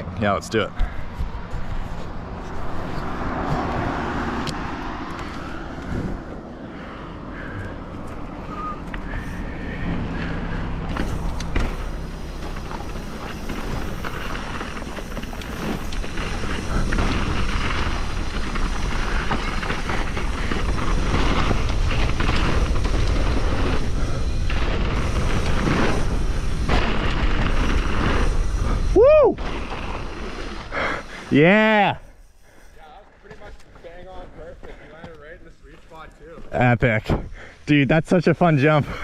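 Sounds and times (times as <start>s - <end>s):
tyres rumbling over dirt: 0.0s - 39.0s
bike rattling and knocking: 4.6s - 31.2s.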